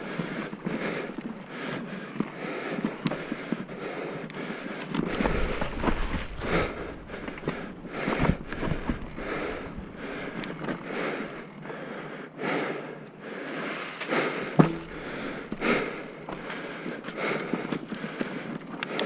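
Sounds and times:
bike rattling: 0.0 - 12.0, 14.0 - 18.8
bike tyres rolling over trail: 0.0 - 12.2, 13.1 - 18.8
sharp knock: 14.6 - 14.9.

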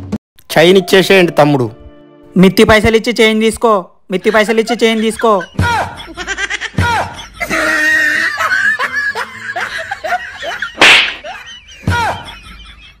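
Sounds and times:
men laughing: 4.2 - 13.0
loud sharp smack: 10.8 - 11.3.

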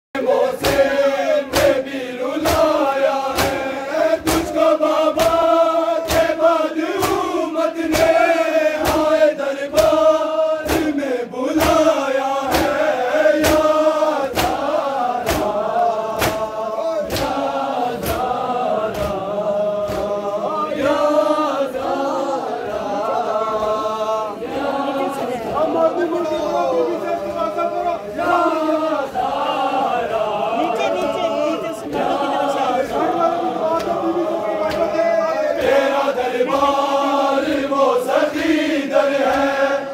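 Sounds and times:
men chanting in unison: 0.2 - 39.9.

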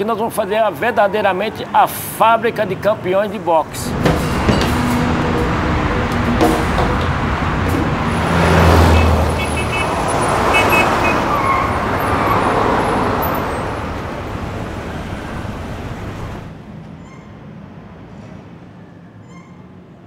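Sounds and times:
road traffic rushing past: 3.0 - 19.9
heavy vehicle rumbling past: 3.6 - 16.8.

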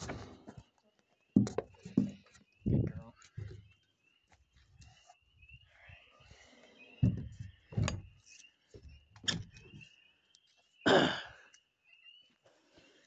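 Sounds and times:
heavy knocks and thumps: 7.0 - 8.1.

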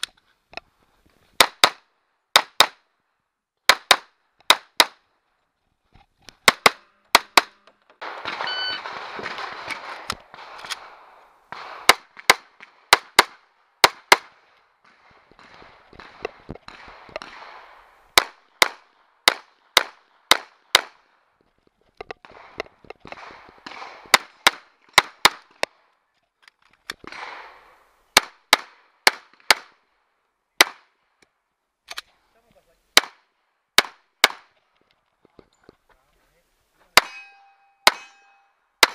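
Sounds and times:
pistol shots: 6.4 - 21.0, 22.2 - 25.8, 27.0 - 29.8, 33.0 - 34.5, 37.0 - 38.9.

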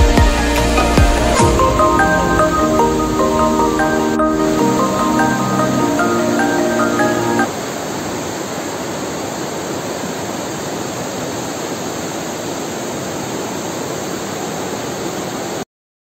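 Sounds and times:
steady rushing noise: 0.0 - 15.6.

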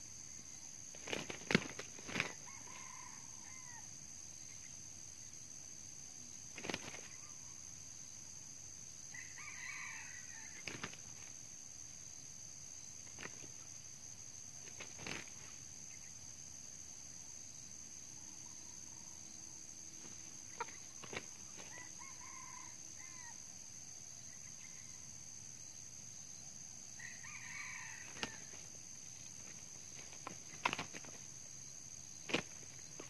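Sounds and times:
insects droning: 0.0 - 33.0
wings slapping: 0.9 - 2.8, 6.5 - 7.2, 10.6 - 11.4, 13.0 - 13.7, 14.6 - 15.6, 20.0 - 21.9, 28.0 - 31.3, 32.2 - 33.0
rooster crowing: 2.3 - 3.9, 9.1 - 10.6, 21.6 - 23.4, 27.0 - 28.6.

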